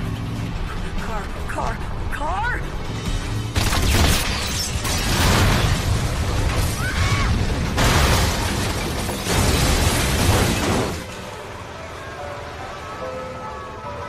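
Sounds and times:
heavy crash impacts: 0:04.8 - 0:11.2.

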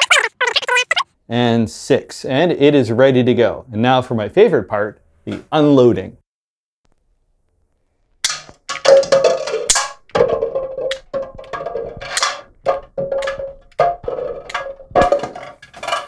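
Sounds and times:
plastic cups clattering: 0:08.3 - 0:16.0.

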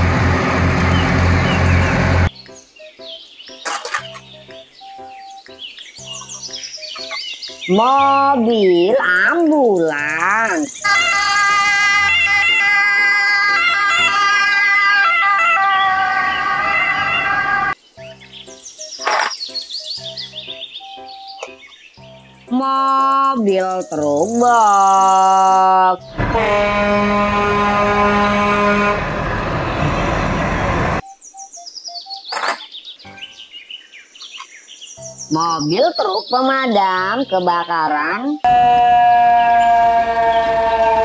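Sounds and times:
rushing vehicle noise: 0:00.0 - 0:02.4, 0:10.8 - 0:17.8, 0:26.0 - 0:31.2
high chirps: 0:00.9 - 0:07.9, 0:15.6 - 0:22.4, 0:31.0 - 0:33.4
ambulance siren: 0:10.8 - 0:17.8, 0:38.4 - 0:41.0
truck air horn blast: 0:15.8 - 0:17.8, 0:26.0 - 0:31.0, 0:38.5 - 0:41.0.

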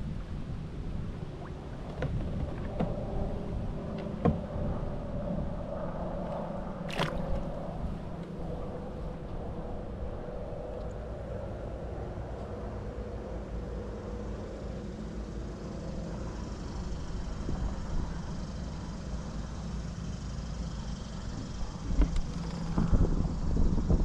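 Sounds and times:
wind buffeting microphone: 0:00.0 - 0:12.2, 0:21.3 - 0:24.0.

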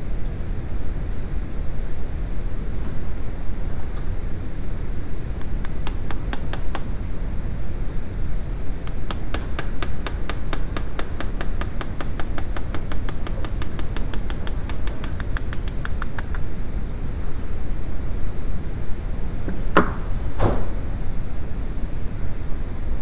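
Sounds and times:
steady low rumble: 0:00.0 - 0:23.0
sharp hand tool clicking: 0:05.4 - 0:06.9, 0:08.8 - 0:16.5.

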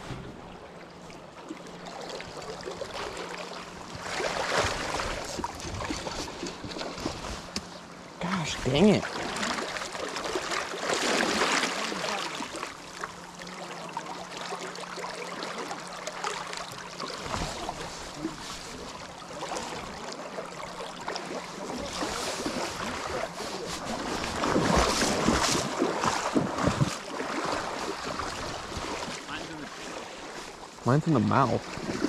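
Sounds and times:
river current rushing: 0:08.2 - 0:32.0.

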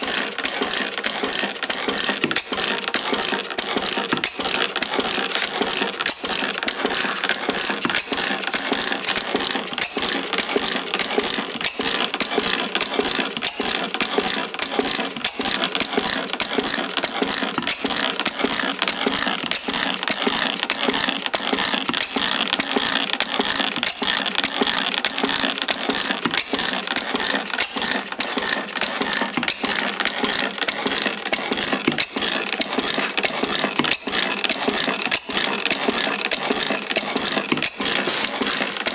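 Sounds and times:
stationary gas engine clattering: 0:00.0 - 0:38.9.

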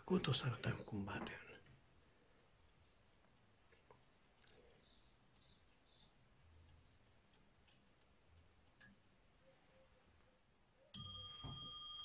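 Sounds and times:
faint clicks: 0:01.2 - 0:04.9, 0:05.6 - 0:09.1
clock bell striking: 0:11.0 - 0:12.0.

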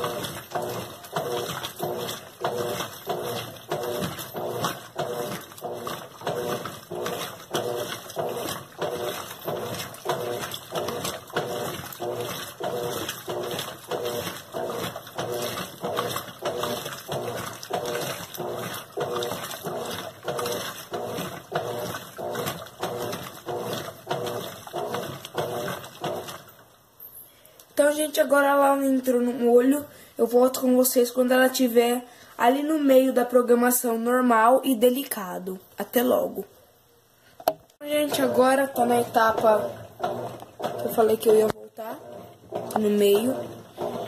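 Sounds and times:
washing machine motor humming: 0:00.0 - 0:26.9, 0:37.8 - 0:44.0
water and clothes sloshing: 0:00.0 - 0:27.2, 0:37.8 - 0:44.0.

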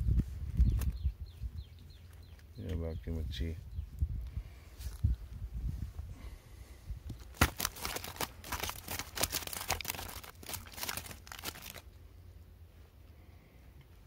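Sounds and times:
palm-leaf basket crackling: 0:07.1 - 0:12.0.

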